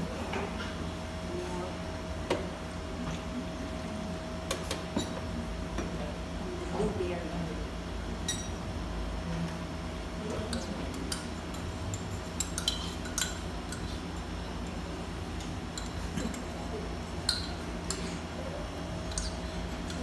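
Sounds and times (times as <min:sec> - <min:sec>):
metal spoon clinking on steel cup: 0:10.5 - 0:13.9.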